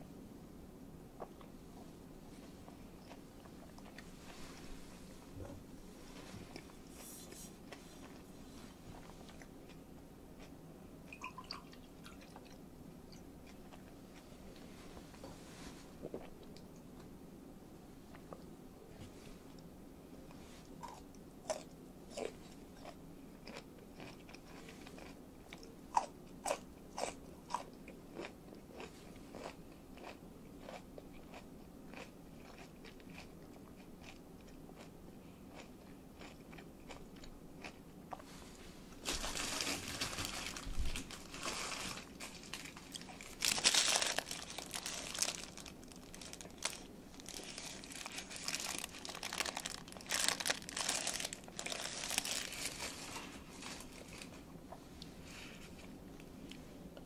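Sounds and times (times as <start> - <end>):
chewing with crunches: 1.2 - 4.6, 7.6 - 14.4, 20.6 - 38.3, 39.9 - 55.1
paper wrapper rustling: 39.0 - 54.3.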